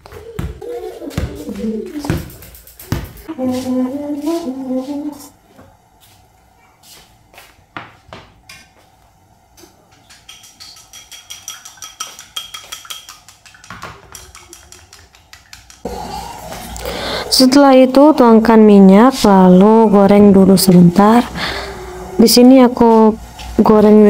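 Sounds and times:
cookware clicks and knocks: 9.9 - 15.8.

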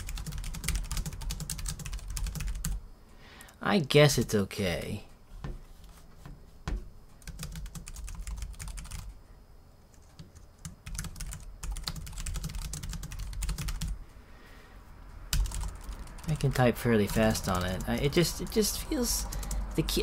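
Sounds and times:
keyboard typing: 0.0 - 2.8, 7.2 - 9.1, 9.9 - 14.0, 15.3 - 19.8.

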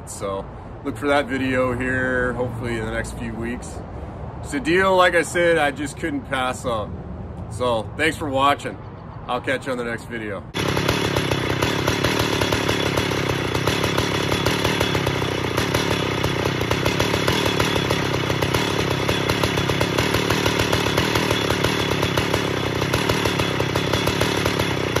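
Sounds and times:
chainsaw engine running: 10.5 - 25.0.

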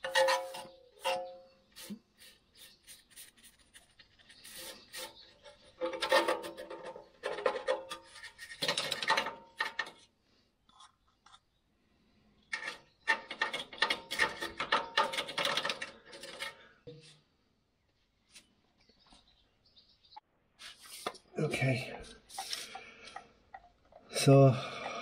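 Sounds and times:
paintbrush scrubbing on metal: 0.0 - 6.6, 22.3 - 22.8.

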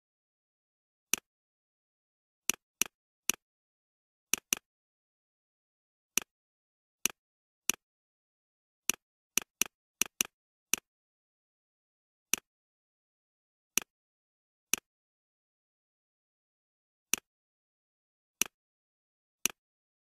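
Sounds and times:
computer mouse clicking: 4.3 - 4.7, 8.9 - 10.9.

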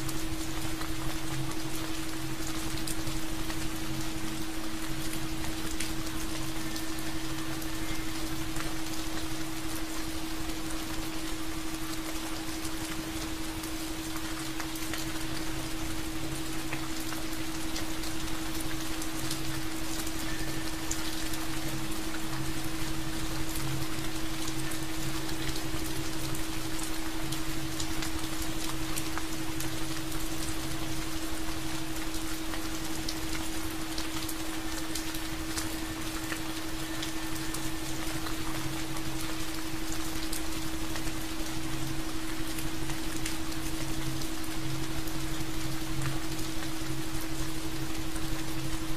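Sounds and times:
heavy rain: 0.0 - 48.9.

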